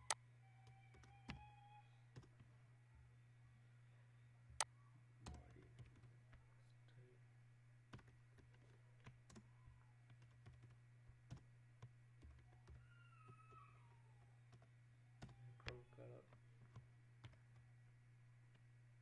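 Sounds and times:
keyboard keystrokes and clicks: 0.0 - 2.5, 4.5 - 6.4, 7.9 - 13.6, 14.4 - 17.7
steady low hum: 1.8 - 12.9, 13.8 - 19.0.

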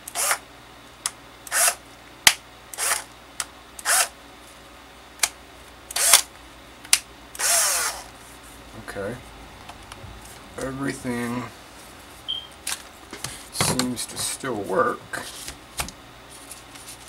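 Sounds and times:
cordless drill motor whirring: 0.0 - 0.4, 1.5 - 1.8, 2.7 - 3.1, 3.8 - 4.2, 5.9 - 6.3, 7.3 - 8.1.

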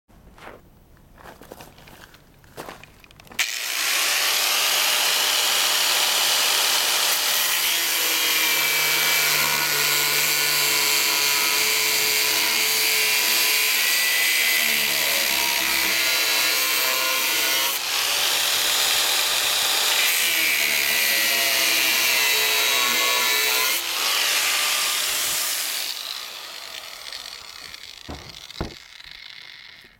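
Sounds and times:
angle grinder cutting steel: 3.3 - 29.9.

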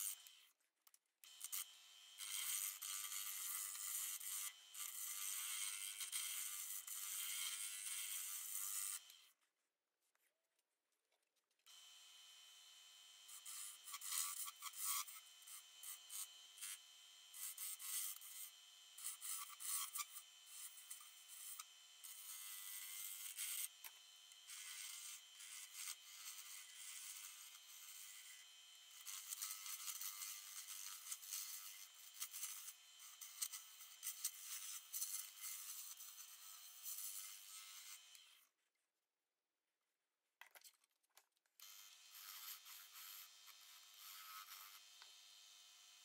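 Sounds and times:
lathe whine: 1.3 - 9.2, 11.7 - 38.4, 41.6 - 46.0
tool scraping wood on lathe: 1.3 - 9.2, 13.2 - 38.2, 41.6 - 45.2.

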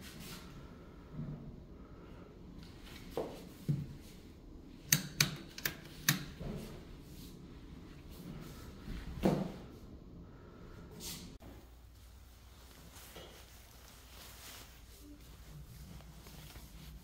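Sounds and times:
sharp clicks and knocks: 4.9 - 6.7.

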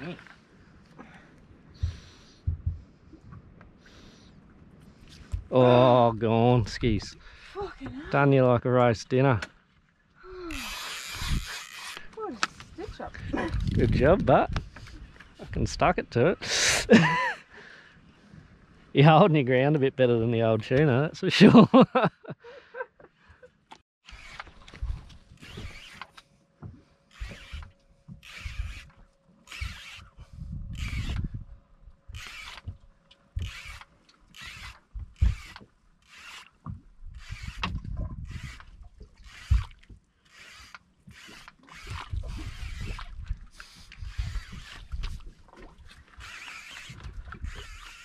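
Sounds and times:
fishing reel gears whirring: 10.5 - 12.2, 24.0 - 24.6, 25.3 - 26.2, 27.1 - 31.3, 32.1 - 32.7, 33.4 - 36.6, 37.2 - 45.0, 46.1 - 48.0.

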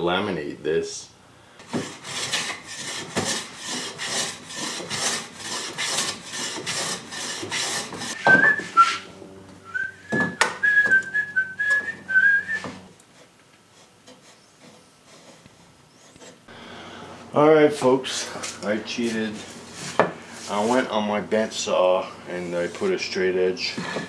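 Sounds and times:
hand plane shaving wood: 1.6 - 9.0, 18.2 - 21.0, 23.6 - 24.0
person whistling a tune: 8.2 - 9.0, 9.6 - 12.7.

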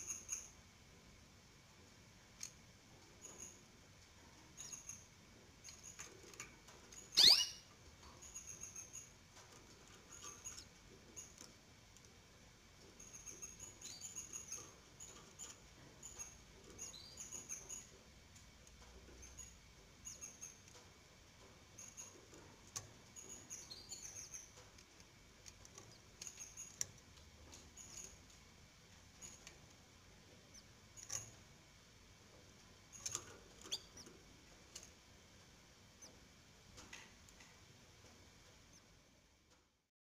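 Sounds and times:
baby birds peeping: 7.1 - 9.1, 12.9 - 18.0, 21.8 - 25.0, 30.4 - 31.4, 32.9 - 34.8.

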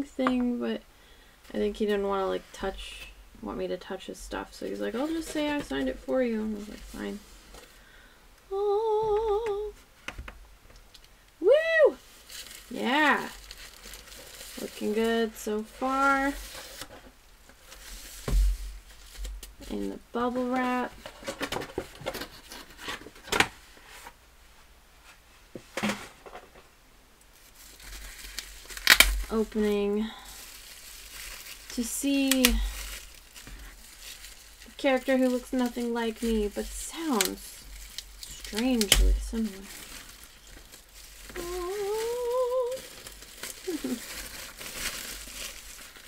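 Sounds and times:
bubble-wrap mailer rustling: 4.2 - 7.8, 12.0 - 24.1, 27.4 - 46.0
woman humming rising note: 41.4 - 42.8.

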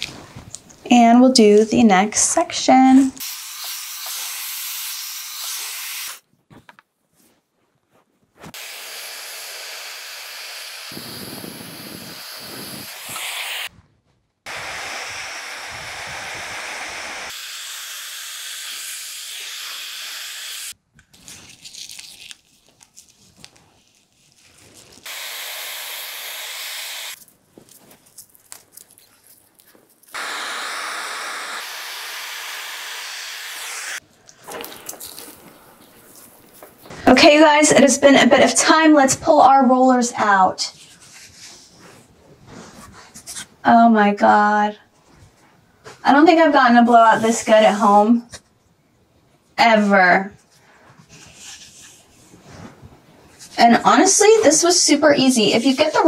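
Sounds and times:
hair dryer blowing: 3.2 - 6.2, 8.5 - 13.7, 14.5 - 20.8, 25.1 - 27.2, 30.2 - 34.0.

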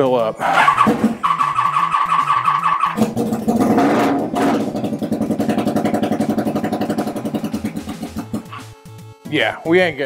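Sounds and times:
motorcycle engine running and revving: 3.0 - 8.8.

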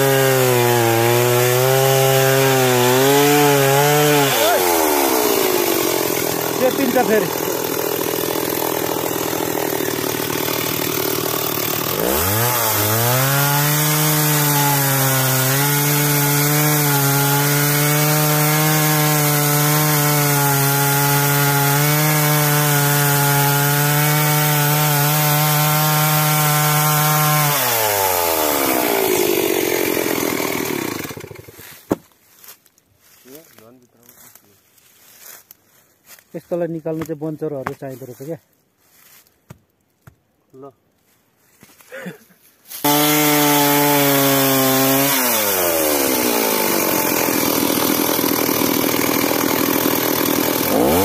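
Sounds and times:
chainsaw cutting wood: 0.0 - 32.0, 42.7 - 51.0.

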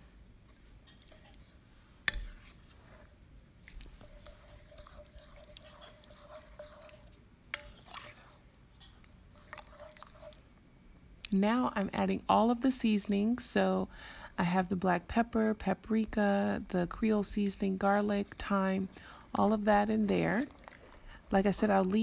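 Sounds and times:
faint steady hum: 0.0 - 22.0
spoon stirring and scraping pot: 0.5 - 10.4, 16.1 - 22.0.

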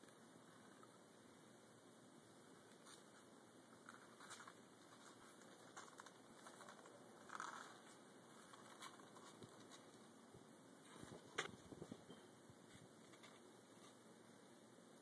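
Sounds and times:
faint hiss: 0.0 - 15.0
soft rustles: 2.6 - 14.4.

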